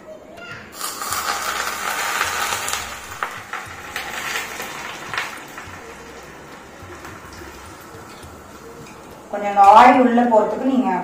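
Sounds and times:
hot oil sizzling: 0.7 - 10.9
sharp crackles: 0.8 - 9.1.

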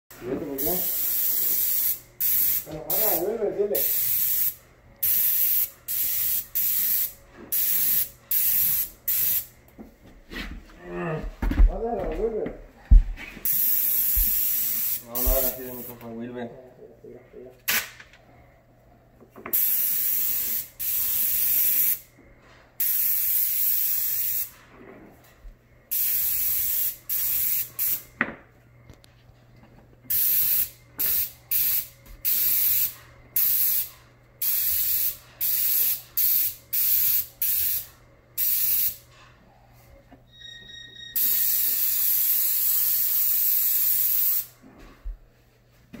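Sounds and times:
paint spray gun hissing: 0.6 - 3.2, 3.8 - 9.5, 13.4 - 16.0, 19.5 - 22.0, 22.8 - 24.5, 25.9 - 28.0, 30.1 - 39.0, 41.2 - 44.5.

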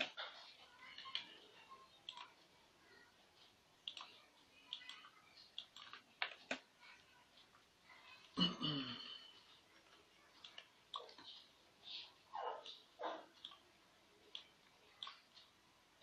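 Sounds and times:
computer mouse clicks: 2.0 - 2.5, 3.4 - 6.7, 12.6 - 15.5.

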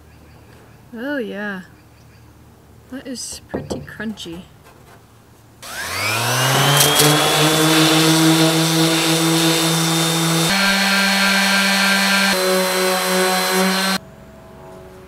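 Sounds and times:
orbital sander whining: 5.6 - 14.0.

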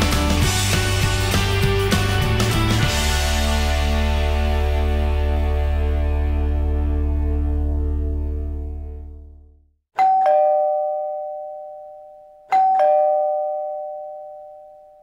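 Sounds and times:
music: 0.0 - 9.8
two-tone doorbell chime: 10.0 - 15.0.

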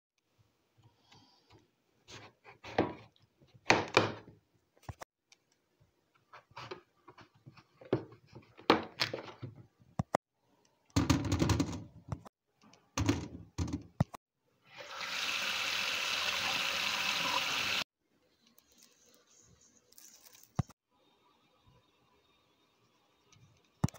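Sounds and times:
tap water running into strainer: 14.8 - 17.8.

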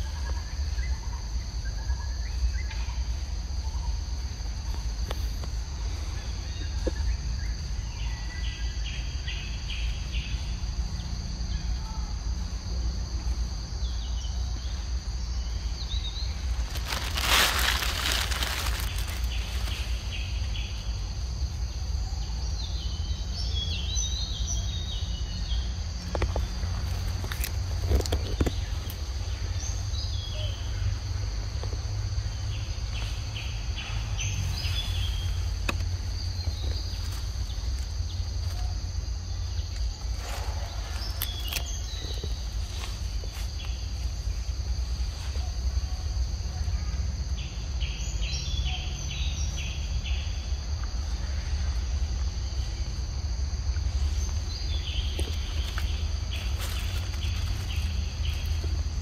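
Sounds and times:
insect drone: 0.0 - 59.0
birds chirping: 53.6 - 59.0.

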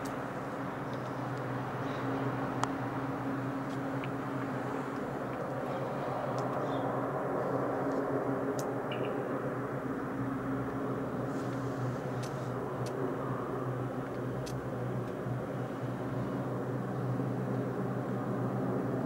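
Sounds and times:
distant helicopter hovering: 0.0 - 19.0.

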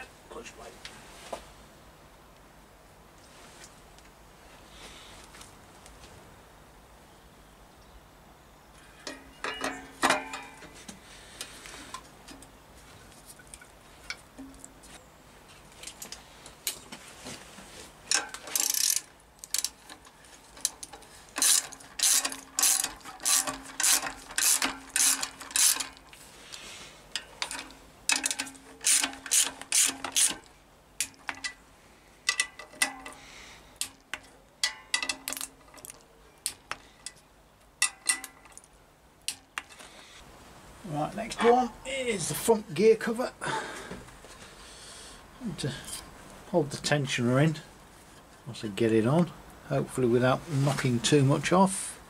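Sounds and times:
ratchet wrench clicking: 18.1 - 19.9, 20.6 - 26.0, 27.4 - 30.4.

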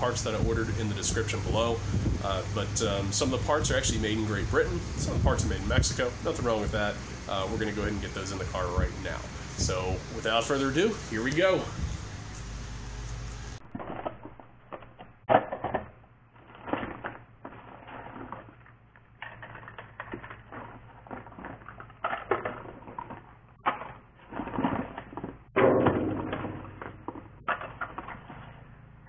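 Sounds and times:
clicks rattles and crinkling: 13.6 - 25.6.

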